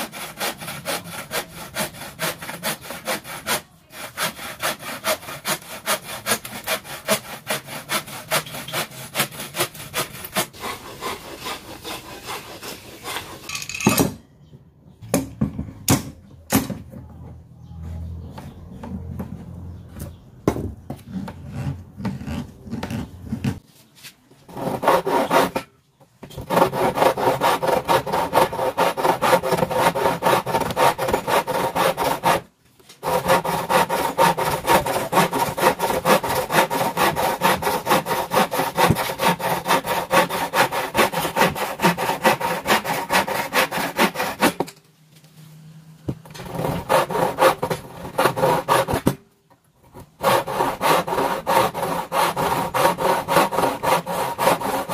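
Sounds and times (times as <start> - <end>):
hand saw cutting board: 0.0 - 13.6, 24.5 - 44.7, 46.2 - 49.2, 49.9 - 54.9.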